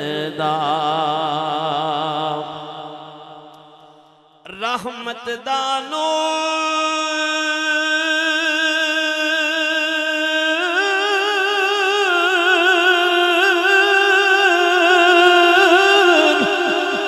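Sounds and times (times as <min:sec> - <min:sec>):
man singing: 0:00.0 - 0:03.0, 0:04.4 - 0:17.0.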